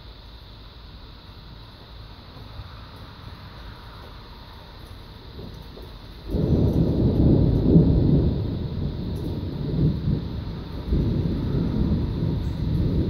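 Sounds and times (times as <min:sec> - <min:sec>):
rolling thunder: 0:05.2 - 0:13.0.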